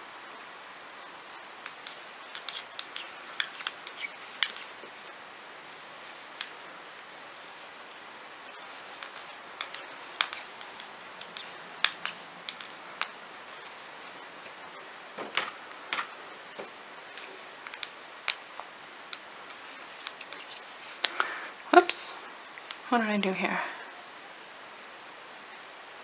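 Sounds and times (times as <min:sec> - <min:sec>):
faint steady hiss: 0:00.0 - 0:26.0
knitting needles clicking: 0:01.0 - 0:05.2, 0:06.1 - 0:07.1, 0:07.8 - 0:14.7, 0:15.4 - 0:23.2.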